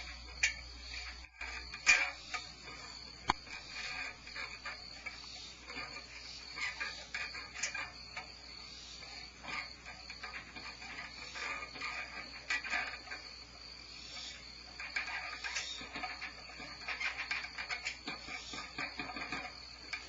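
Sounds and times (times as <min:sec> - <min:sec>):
crickets trilling: 0:00.0 - 0:20.0
owl scratching nest floor: 0:14.0 - 0:20.0.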